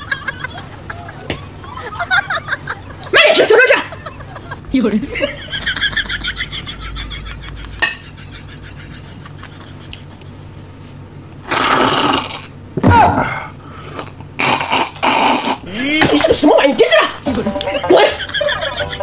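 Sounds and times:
loud slurps of a drink: 11.4s - 12.5s, 13.8s - 15.7s.

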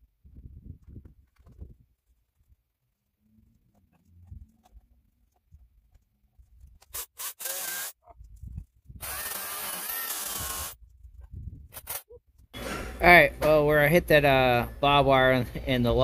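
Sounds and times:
electric chainsaw cutting log: 6.9s - 8.0s, 9.0s - 10.8s.

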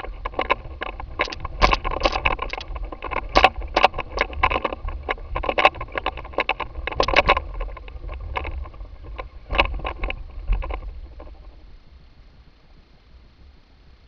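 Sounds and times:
wind rumble on camera: 0.0s - 14.0s
rattling clicks: 0.2s - 10.8s.

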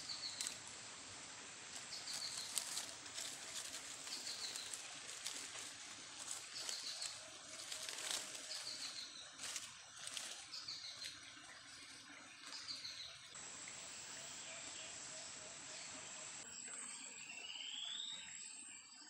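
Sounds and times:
leaf litter rustling: 0.0s - 11.1s
twigs crackling and snapping: 0.2s - 0.6s, 1.7s - 10.4s.

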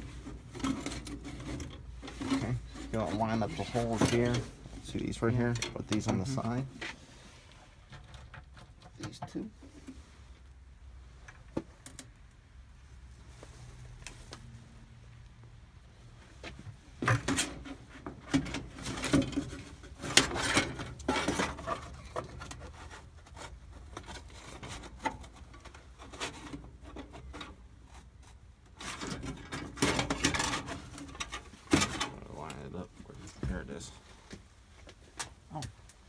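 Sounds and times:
metal scraping on metal: 0.0s - 8.3s, 17.3s - 28.1s, 28.7s - 32.7s.

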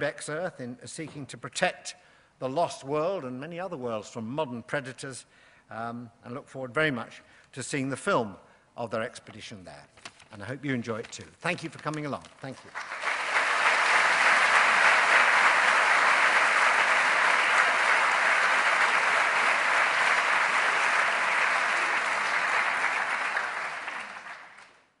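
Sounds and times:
audience applauding: 12.5s - 25.0s.

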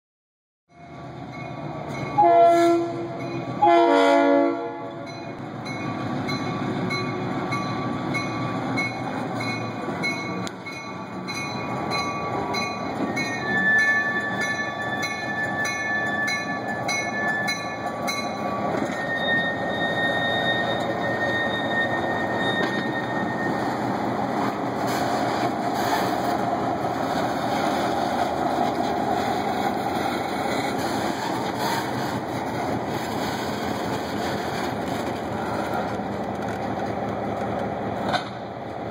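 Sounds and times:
locomotive horn blasts: 2.2s - 5.1s
steel wheels squealing on rails: 5.1s - 36.6s
locomotive engine running: 5.3s - 38.9s.

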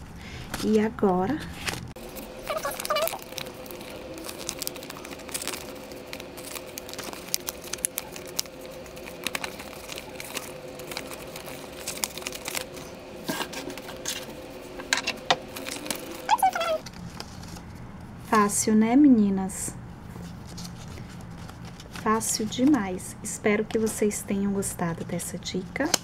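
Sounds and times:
faint steady hum: 0.0s - 26.0s
card paper being flexed: 1.4s - 17.8s
paper crinkling: 1.4s - 17.8s, 20.1s - 23.0s.

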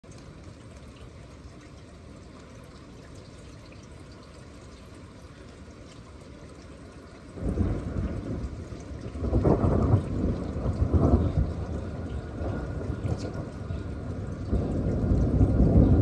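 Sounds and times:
steady rain: 0.0s - 16.0s
water trickling and dripping: 0.0s - 16.0s
deep rumble of thunder: 7.4s - 16.0s.

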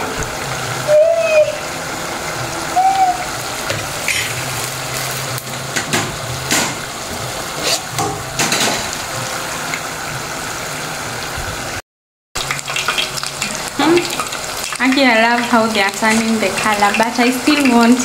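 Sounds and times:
chips sizzling in hot oil: 0.2s - 11.7s, 12.4s - 18.0s
oil crackles: 3.6s - 5.8s, 12.4s - 18.0s.

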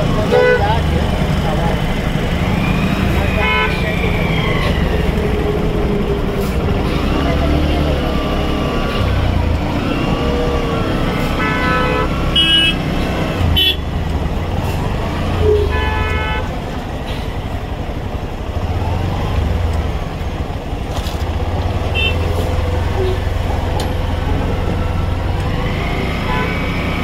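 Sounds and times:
vehicle horns honking: 0.3s - 0.8s, 3.4s - 4.0s, 11.3s - 13.9s, 15.4s - 16.6s, 21.9s - 23.2s, 26.2s - 27.0s.

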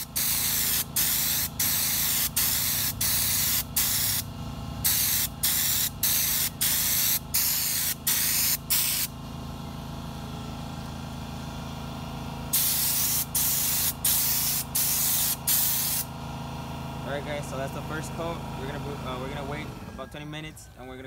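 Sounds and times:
spray gun hissing in bursts: 0.0s - 9.1s, 12.5s - 16.1s.

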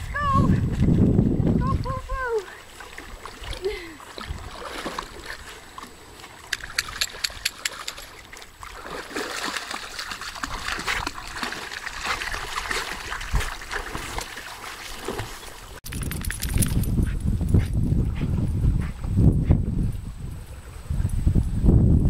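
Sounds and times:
water splashing: 0.0s - 16.4s.

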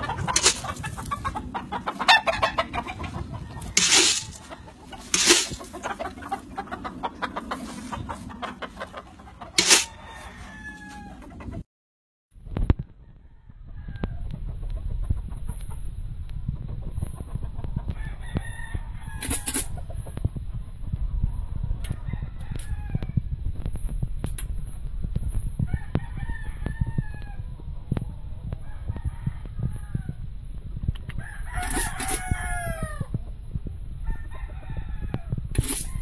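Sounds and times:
chickens clucking: 0.0s - 11.6s, 16.5s - 18.0s
roosters crowing: 0.0s - 11.6s, 17.9s - 19.7s, 21.9s - 23.3s, 25.7s - 27.6s, 28.5s - 30.2s, 31.2s - 33.2s, 34.0s - 36.0s.

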